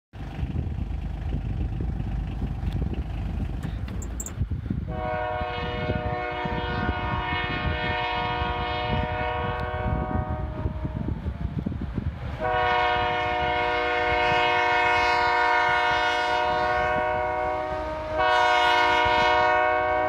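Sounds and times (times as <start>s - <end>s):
low rumble: 0.2s - 5.0s
locomotive air horn chord: 4.9s - 11.4s, 12.4s - 20.0s.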